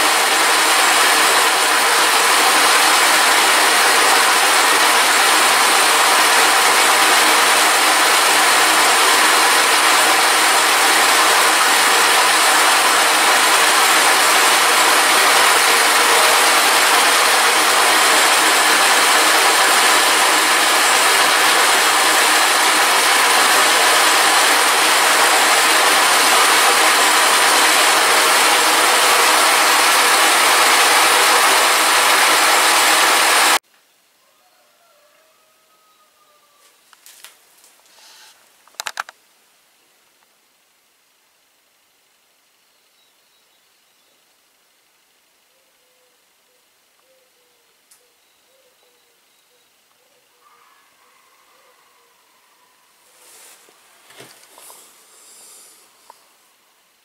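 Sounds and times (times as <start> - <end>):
milling machine cutting metal: 0.0 - 33.6.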